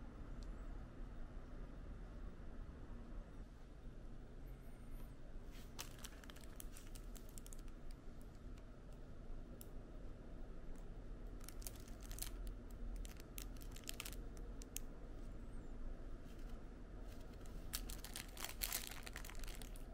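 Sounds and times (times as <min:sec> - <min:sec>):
plastic packaging clicking and crinkling: 0:05.7 - 0:08.4, 0:11.3 - 0:14.9, 0:16.3 - 0:19.9.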